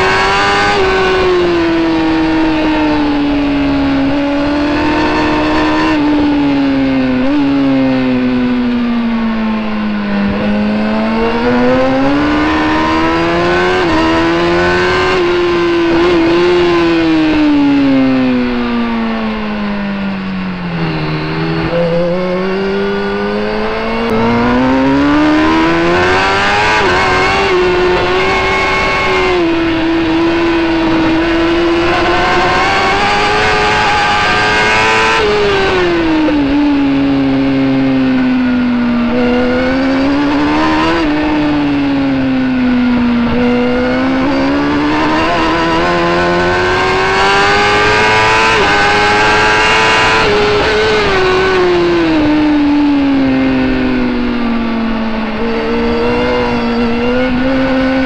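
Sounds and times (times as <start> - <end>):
motorbike engine revving: 0.0 - 58.0.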